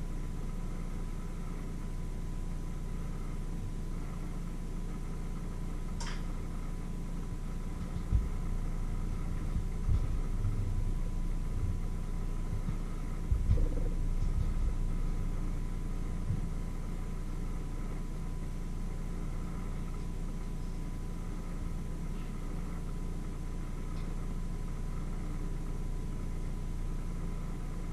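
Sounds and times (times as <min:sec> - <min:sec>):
steady low hum: 0:00.0 - 0:27.9.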